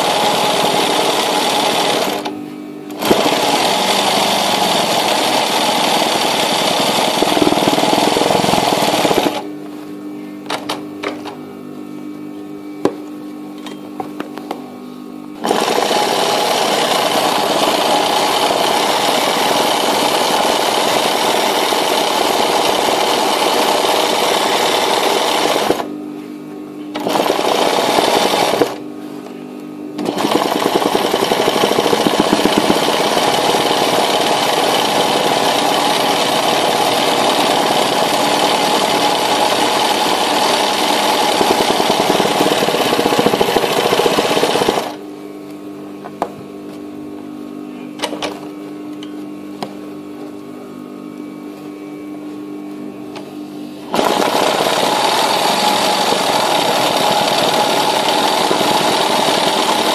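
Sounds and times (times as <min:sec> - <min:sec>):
sewing machine stitching: 0:00.0 - 0:02.3, 0:02.9 - 0:09.4, 0:15.4 - 0:25.9, 0:27.0 - 0:28.8, 0:30.0 - 0:45.0, 0:53.9 - 0:59.9
steady hum: 0:00.0 - 0:59.9.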